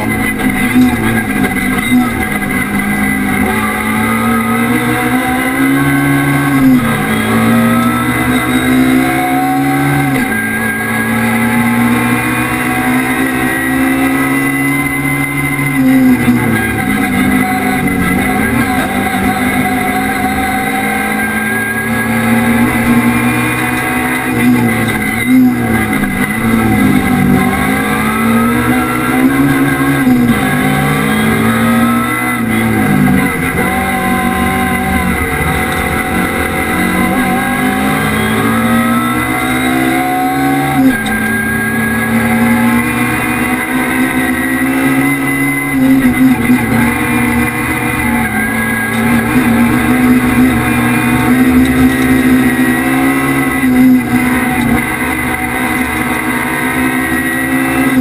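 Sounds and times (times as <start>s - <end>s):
race car engine at full throttle: 0.0s - 58.0s.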